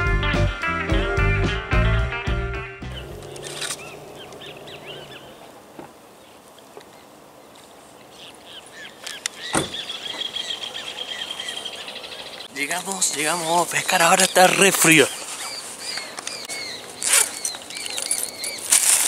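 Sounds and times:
guitar music: 1.4s - 5.4s
small birds chirping: 2.8s - 18.8s
faint low hum: 2.9s - 6.4s.

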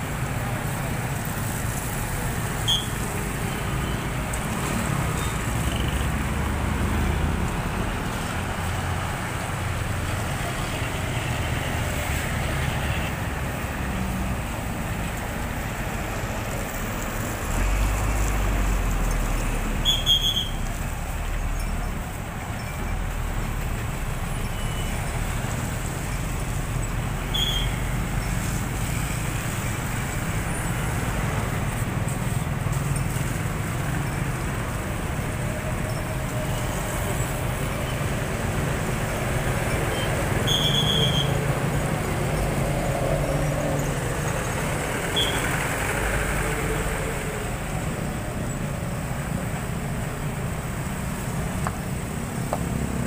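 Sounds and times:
diesel trucks: 0.0s - 53.0s
road traffic passing: 0.0s - 53.0s
short high-pitched squeaks: 2.6s - 3.0s, 19.8s - 20.7s, 27.3s - 28.6s, 39.9s - 41.4s
motorcycles passing: 25.0s - 53.0s.

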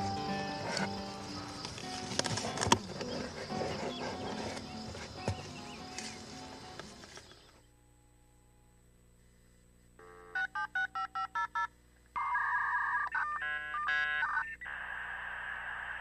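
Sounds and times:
dial tone: 10.0s - 15.1s.

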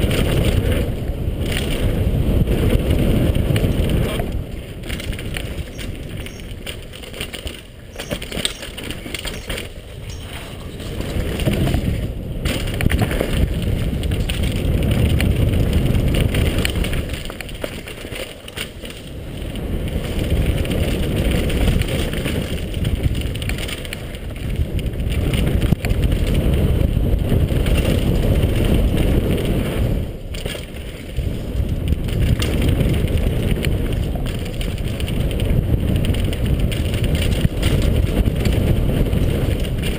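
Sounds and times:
bike rattling and knocking: 0.0s - 39.9s
wind rush on microphone: 0.0s - 39.9s
tyres crunching over dirt and stones: 3.6s - 26.4s.

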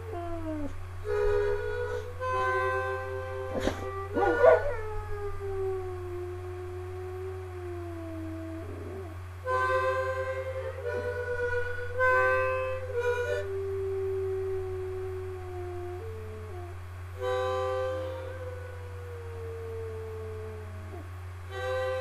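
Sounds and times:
harmonica playing chords: 1.0s - 4.8s, 9.4s - 14.6s, 17.2s - 19.0s, 21.5s - 22.0s
dog howling: 3.5s - 9.2s, 12.9s - 16.8s, 18.0s - 21.1s.

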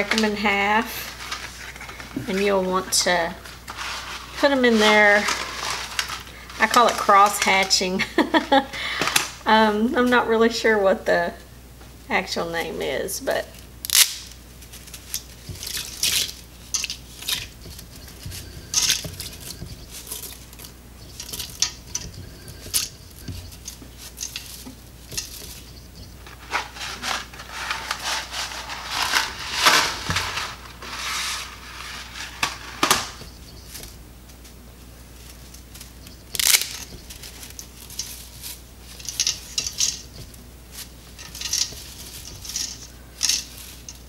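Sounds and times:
dry pasta snapping: 13.8s - 26.1s, 35.3s - 44.0s.

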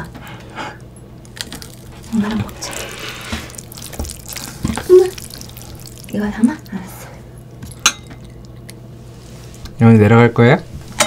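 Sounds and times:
chewing and slurping noodles: 1.2s - 9.6s
person humming: 4.6s - 5.2s.

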